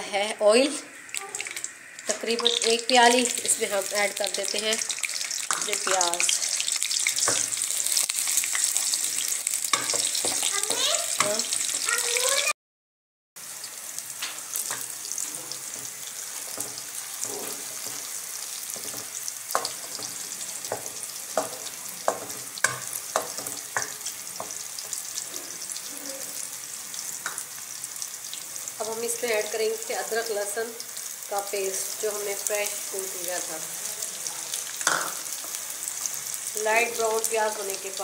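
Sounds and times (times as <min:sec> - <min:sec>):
onions sizzling in hot oil: 0:00.0 - 0:12.5, 0:13.4 - 0:38.0
wooden spoon scraping a pan: 0:15.4 - 0:25.6.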